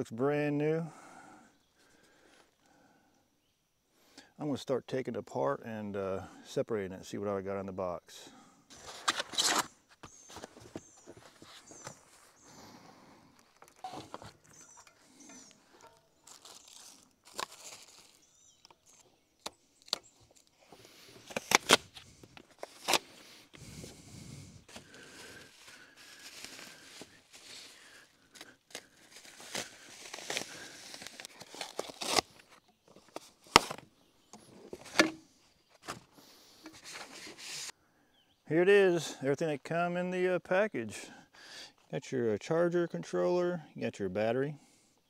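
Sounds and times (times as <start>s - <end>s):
plastic and foam rustling: 8.7s - 12.6s, 13.3s - 19.0s, 20.3s - 33.8s.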